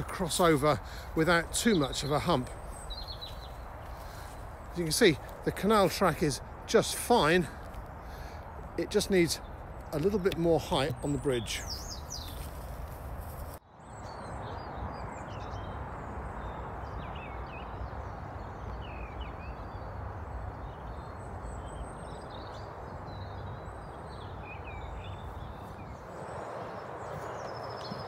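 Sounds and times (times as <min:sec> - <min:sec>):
small birds chirping: 0:00.0 - 0:28.0.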